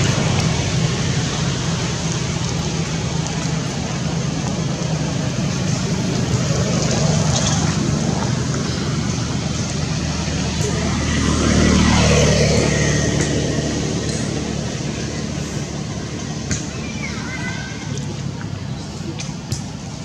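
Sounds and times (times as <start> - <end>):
low engine hum: 0.0 - 20.0.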